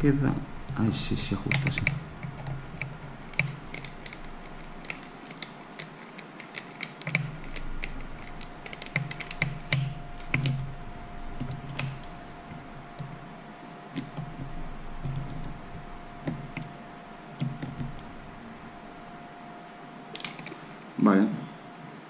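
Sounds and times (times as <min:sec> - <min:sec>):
screwdriver clicks and taps: 0:01.5 - 0:10.8, 0:11.4 - 0:12.2, 0:16.2 - 0:16.8.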